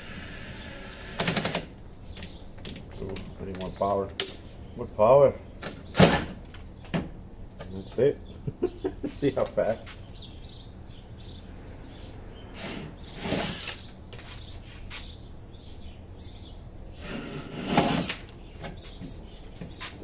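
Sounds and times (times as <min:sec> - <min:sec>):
drill cutting into sheet metal: 0:00.0 - 0:01.5, 0:12.5 - 0:13.9, 0:17.0 - 0:18.2
birds chirping: 0:00.5 - 0:20.0.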